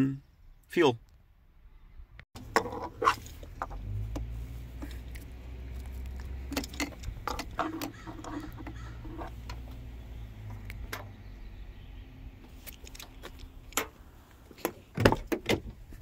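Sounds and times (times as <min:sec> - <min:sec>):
hands clicking and rattling in engine bay: 0:02.4 - 0:09.7.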